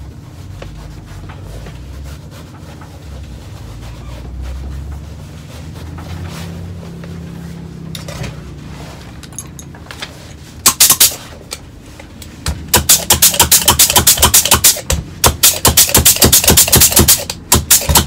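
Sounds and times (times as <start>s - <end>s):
compressed-air gun blasts: 10.6s - 11.2s, 12.7s - 18.0s.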